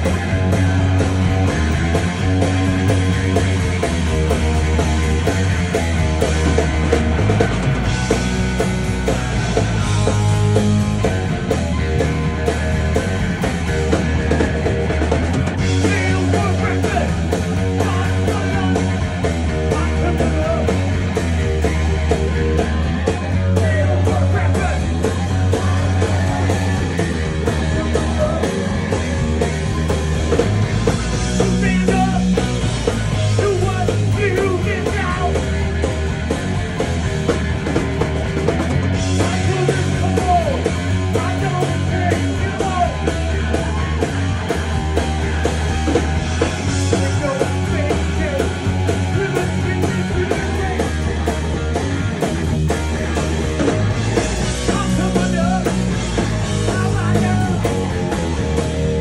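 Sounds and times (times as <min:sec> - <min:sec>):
rock band playing: 0:00.0 - 0:59.0
man singing: 0:15.8 - 0:19.0, 0:19.6 - 0:20.8, 0:23.4 - 0:26.6, 0:27.4 - 0:28.6, 0:31.4 - 0:32.5, 0:33.3 - 0:35.5, 0:39.1 - 0:43.2, 0:46.8 - 0:51.1, 0:54.6 - 0:55.9, 0:56.6 - 0:57.8.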